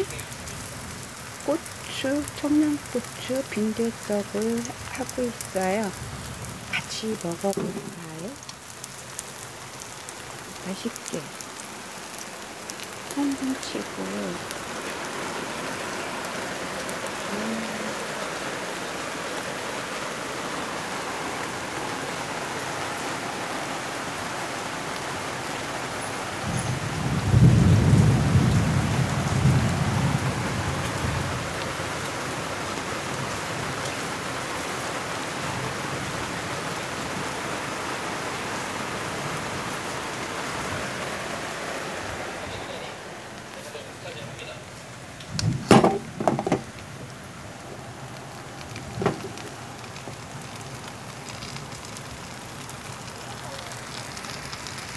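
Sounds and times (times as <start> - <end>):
thunder rumbling: 0.0 - 8.5, 26.4 - 32.1, 45.2 - 54.9
heavy rain: 0.0 - 54.9.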